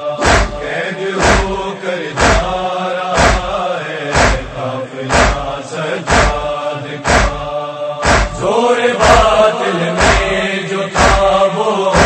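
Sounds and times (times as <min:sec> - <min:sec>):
voices chanting: 0:00.0 - 0:12.0
chest-beating slaps: 0:00.2 - 0:02.6, 0:03.2 - 0:07.4, 0:08.0 - 0:09.3, 0:10.0 - 0:10.4, 0:11.0 - 0:11.3.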